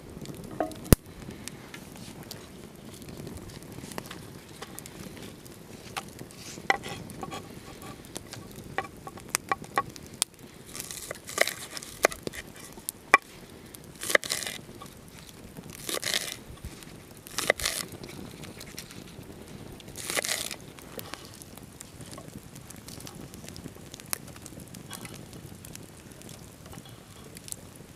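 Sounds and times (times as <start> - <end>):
knife crunching through onions: 10.7 - 13.3, 14.0 - 15.0, 15.8 - 19.0, 20.0 - 20.6.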